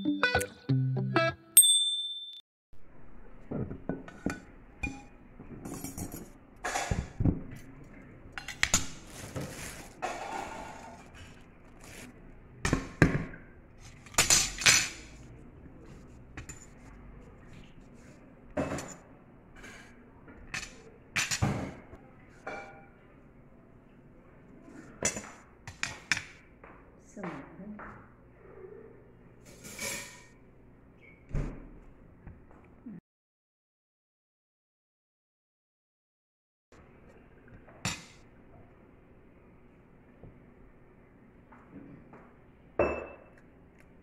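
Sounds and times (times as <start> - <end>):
plates and cutlery clinking: 3.5 - 7.2.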